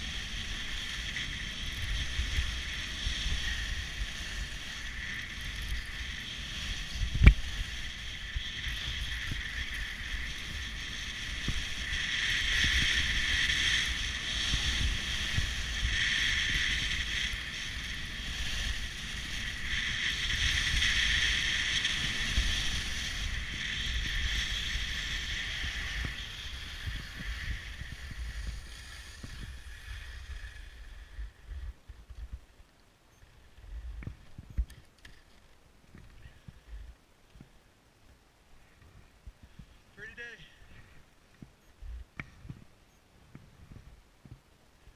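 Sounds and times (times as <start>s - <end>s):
skis scraping on snow: 0.0s - 32.4s
wind rumble on microphone: 0.0s - 37.0s, 40.6s - 44.9s.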